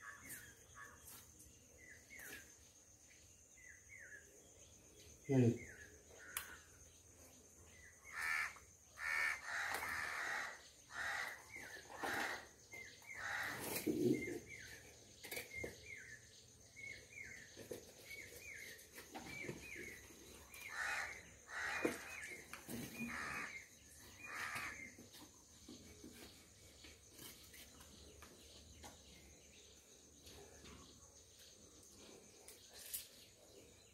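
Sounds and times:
crows cawing: 0:08.0 - 0:12.5, 0:13.1 - 0:13.8, 0:20.6 - 0:24.9.

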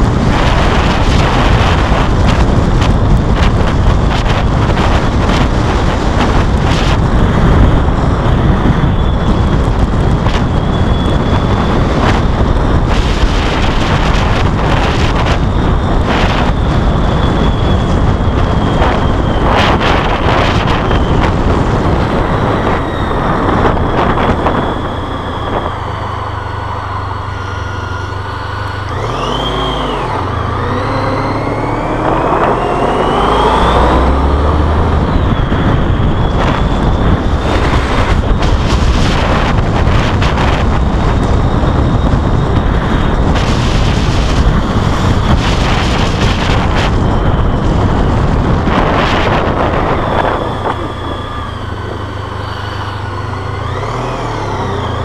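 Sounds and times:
motorcycle engine: 0:00.0 - 0:55.0
wind buffeting microphone: 0:00.0 - 0:55.0.

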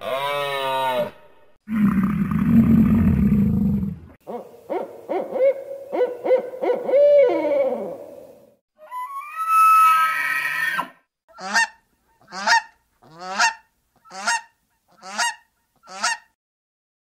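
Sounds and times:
low rough roar: 0:01.7 - 0:04.2.

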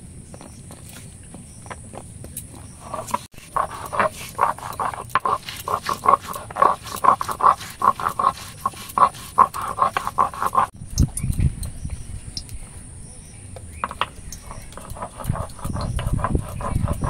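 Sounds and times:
stone roller crushing garlic: 0:01.7 - 0:11.4, 0:13.6 - 0:17.0.

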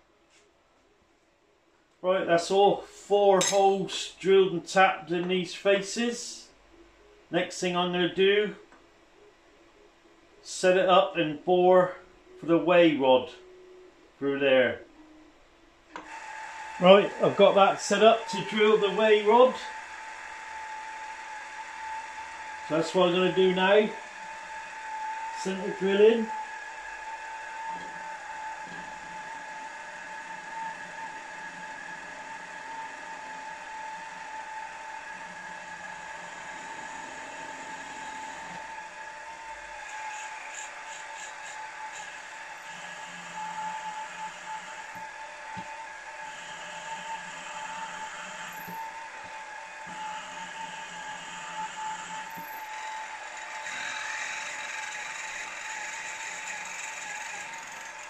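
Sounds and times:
milling machine spindle whine: 0:15.9 - 0:58.0
drill drilling into metal: 0:16.0 - 0:58.0.

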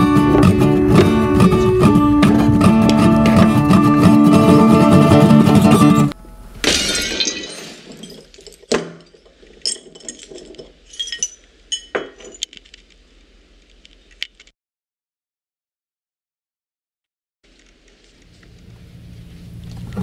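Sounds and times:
glass bottle breaking: 0:06.6 - 0:12.5
glass shards clinking: 0:06.6 - 0:12.6.

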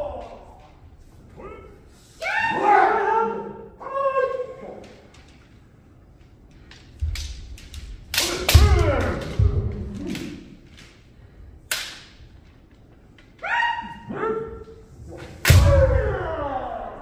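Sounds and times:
bamboo sword strikes cracking: 0:07.0 - 0:11.0, 0:11.7 - 0:12.3, 0:15.2 - 0:16.1
person shouting: 0:08.2 - 0:09.9, 0:15.5 - 0:17.0.

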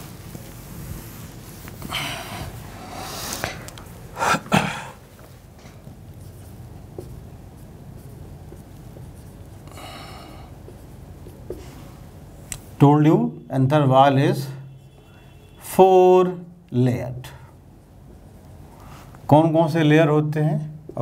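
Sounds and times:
duster rubbing on whiteboard: 0:05.8 - 0:09.6.

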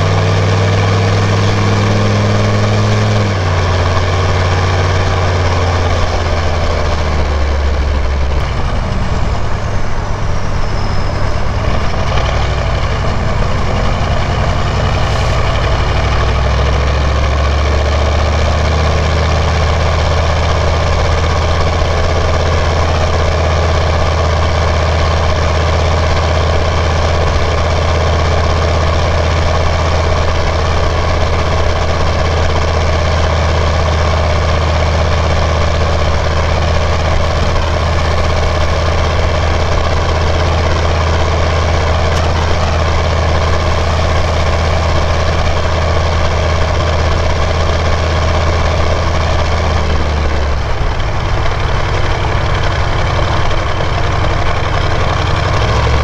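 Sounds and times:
diesel engine running under load: 0:00.0 - 0:56.0
faint turbo whistle: 0:09.1 - 0:15.5.

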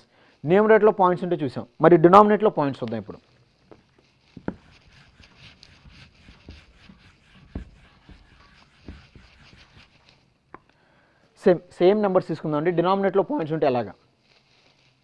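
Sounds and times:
eraser rubbing on whiteboard: 0:03.6 - 0:10.4, 0:14.2 - 0:15.0.

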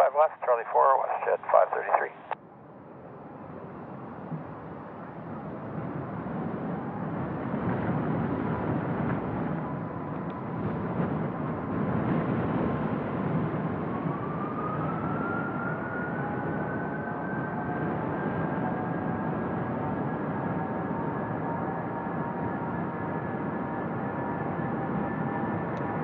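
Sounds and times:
jet engines rumbling: 0:00.0 - 0:02.4
rising jet engine whine: 0:00.0 - 0:26.0.

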